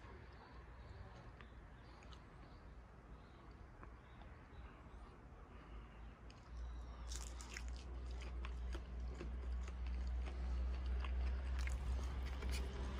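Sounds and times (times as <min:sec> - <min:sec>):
chewing food: 0:00.1 - 0:02.6, 0:06.2 - 0:12.9.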